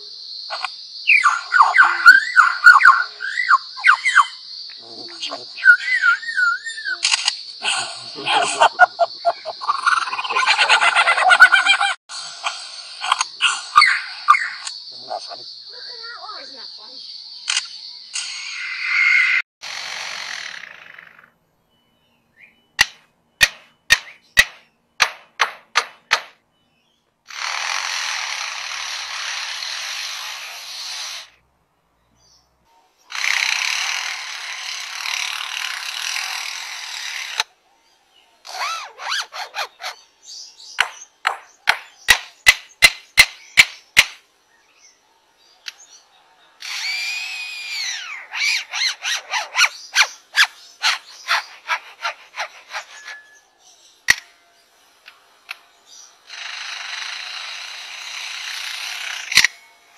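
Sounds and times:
lyrebird harsh buzzing: 0.0 - 16.7, 17.5 - 21.3, 27.3 - 31.4, 33.1 - 37.5, 38.4 - 40.0, 46.6 - 53.5, 55.9 - 59.7.

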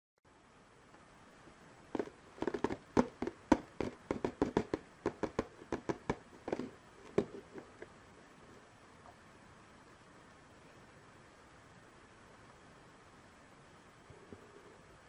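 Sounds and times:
fingers tapping cardboard box: 2.0 - 7.9.

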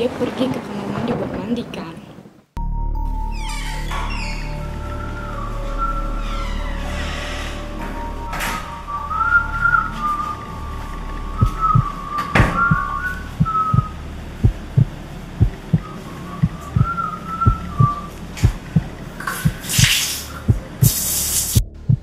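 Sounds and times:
person whistling a tune: 4.8 - 6.4, 8.2 - 13.9, 15.8 - 18.1
low heartbeat-like thumps: 11.3 - 22.0.

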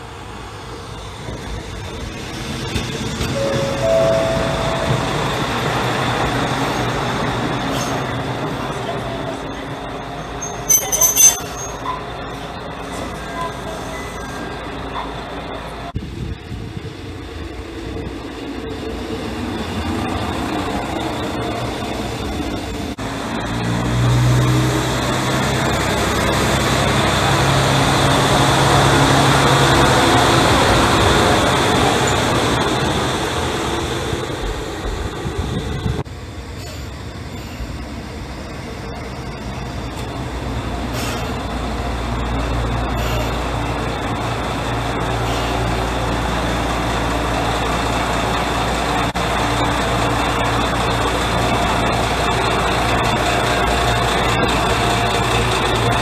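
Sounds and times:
diesel railcar engine droning: 0.0 - 56.0
moving railcar noise: 0.0 - 56.0
diesel engine idling: 36.1 - 56.0.

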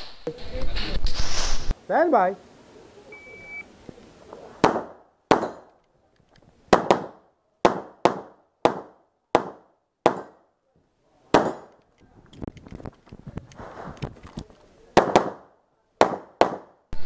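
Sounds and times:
pistol shots with echo: 4.6 - 5.7, 6.7 - 10.4, 11.3 - 11.7, 15.0 - 16.8.

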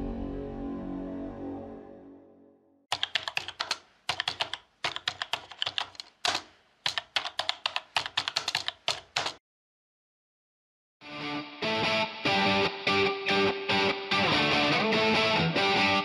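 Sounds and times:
keyboard typing clicks: 2.9 - 9.4.

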